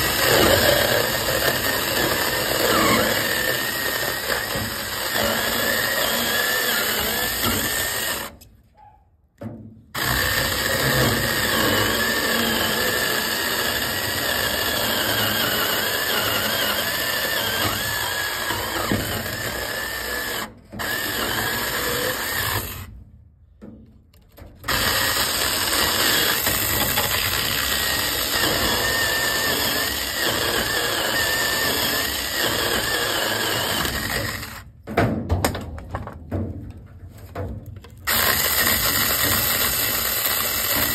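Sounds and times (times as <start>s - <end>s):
chainsaw cutting wood: 0.0s - 8.4s, 9.9s - 22.9s, 24.6s - 34.7s, 38.0s - 40.9s.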